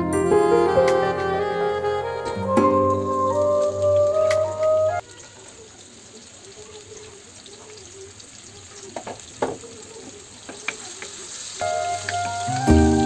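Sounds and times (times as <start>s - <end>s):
oil crackling: 2.8s - 13.0s
onions sizzling in oil: 3.0s - 13.0s.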